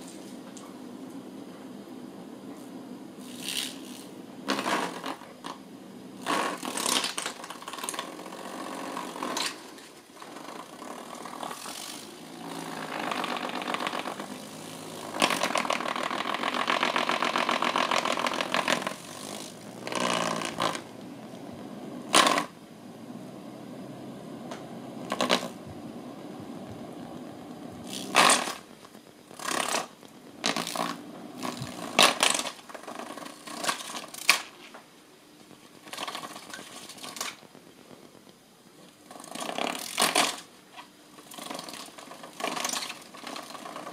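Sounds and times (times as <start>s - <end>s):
desk fan rattling: 2.2s - 43.9s.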